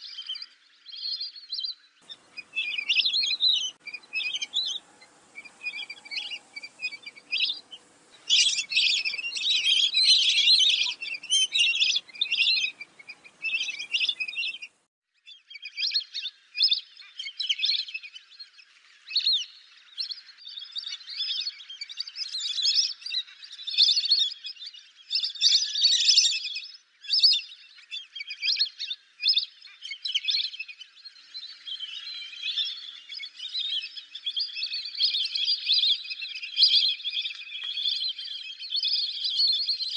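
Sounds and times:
whistling ducks calling: 0:02.0 - 0:14.8.

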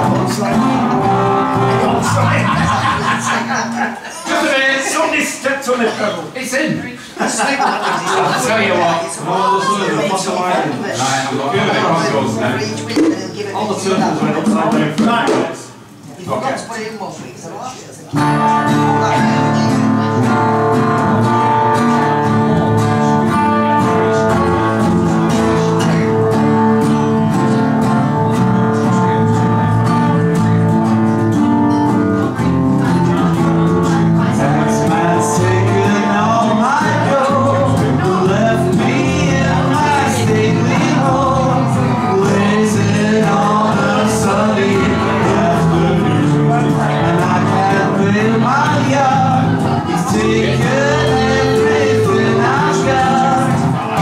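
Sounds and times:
man singing: 0:00.0 - 0:03.3, 0:18.2 - 0:30.6, 0:32.8 - 0:54.0
guitars playing: 0:00.0 - 0:06.1, 0:08.1 - 0:15.5, 0:18.1 - 0:54.0.

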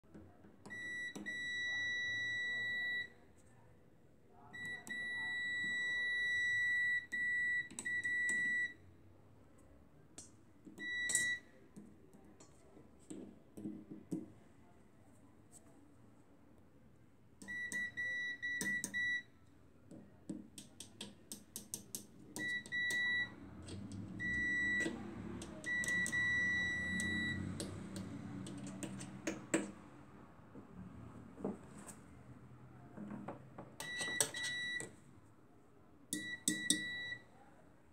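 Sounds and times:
multimeter beeping: 0:00.7 - 0:03.1, 0:04.6 - 0:08.8, 0:10.8 - 0:11.5, 0:17.4 - 0:19.3, 0:22.4 - 0:23.4, 0:24.2 - 0:27.5, 0:33.8 - 0:34.9, 0:36.2 - 0:37.2.

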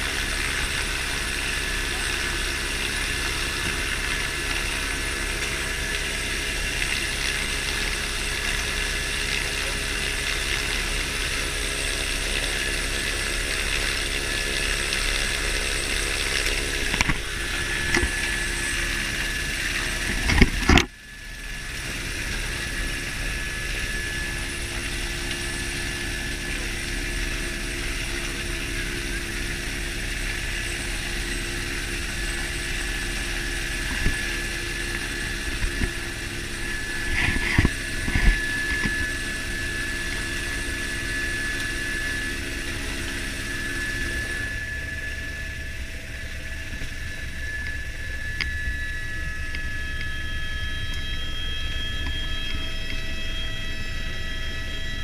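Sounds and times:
helicopter engine and rotor running: 0:00.0 - 0:55.0.

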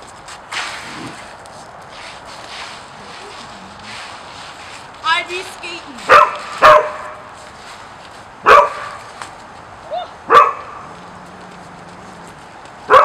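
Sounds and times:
puppy barking: 0:06.1 - 0:07.2, 0:08.4 - 0:09.0, 0:10.3 - 0:10.8
puppy yip: 0:09.9 - 0:10.6.

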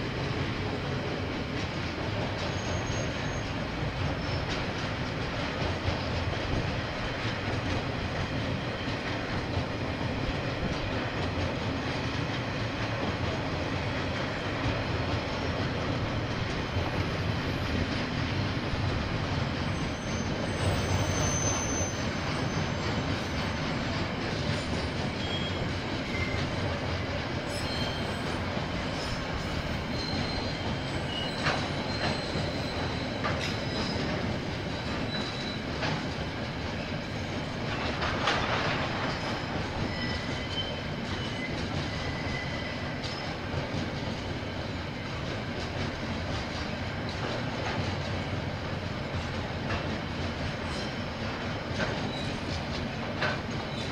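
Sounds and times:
train wheels rumbling on rails: 0:00.0 - 0:53.9
high-pitched wheel squeals: 0:02.5 - 0:03.6, 0:19.7 - 0:23.5, 0:24.8 - 0:26.4, 0:27.5 - 0:28.4, 0:29.0 - 0:34.2, 0:39.8 - 0:43.3.

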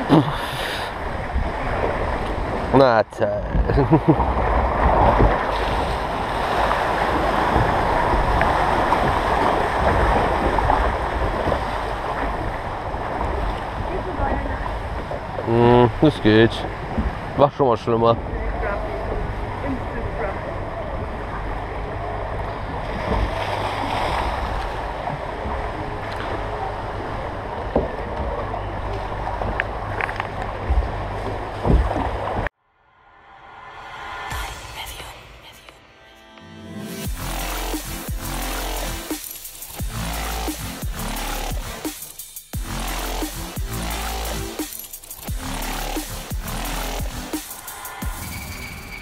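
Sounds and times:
water rushing in channel: 0:00.0 - 0:32.5.

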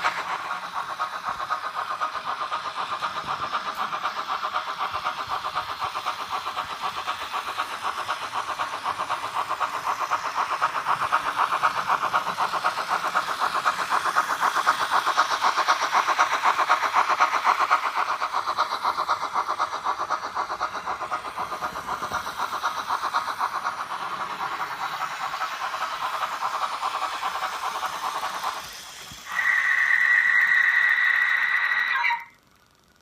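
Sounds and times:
steam locomotive chuffs: 0:00.0 - 0:33.0
two-tone steam whistle: 0:29.3 - 0:32.4.

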